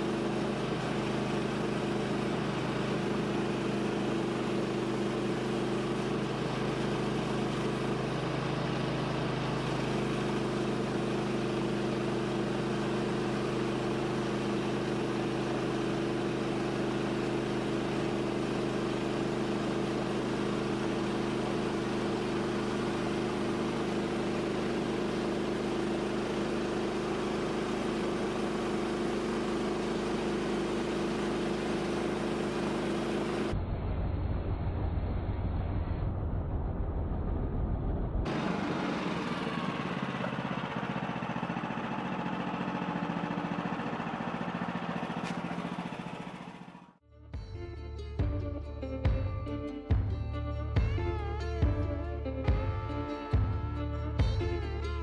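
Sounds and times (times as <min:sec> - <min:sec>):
sawmill engine running: 0:00.0 - 0:33.6, 0:38.2 - 0:47.0
band blade cutting log: 0:45.0 - 0:45.9.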